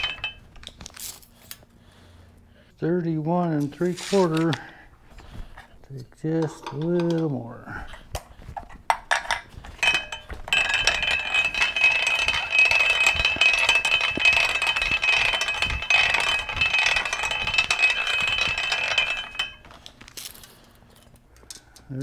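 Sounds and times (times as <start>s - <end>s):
steel tire ringing: 0.0s - 0.5s, 9.7s - 19.9s.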